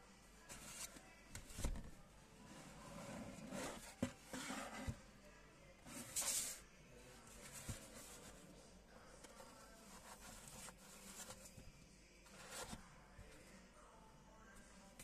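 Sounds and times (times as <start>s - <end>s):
cardboard scraping against cardboard: 2.7s - 5.0s.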